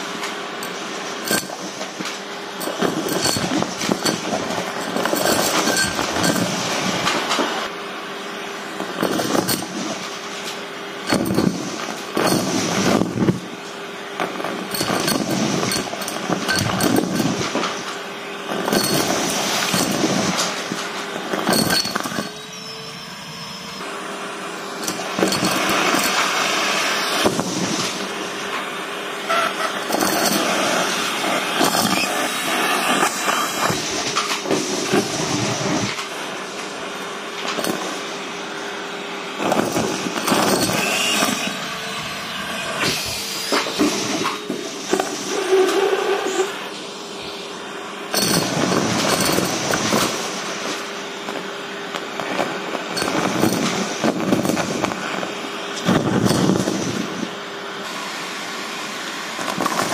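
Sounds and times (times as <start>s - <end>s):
vacuum cleaner suction: 0.0s - 7.7s, 11.2s - 13.6s, 14.2s - 59.9s.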